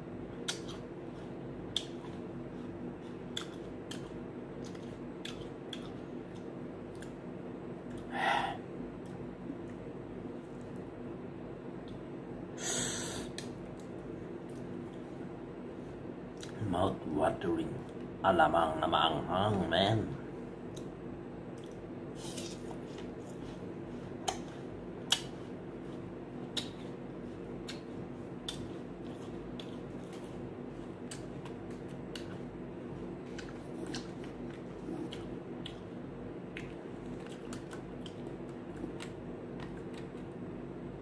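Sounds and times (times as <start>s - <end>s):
steady low hum: 0.0s - 41.0s
apple crunching: 24.2s - 40.3s.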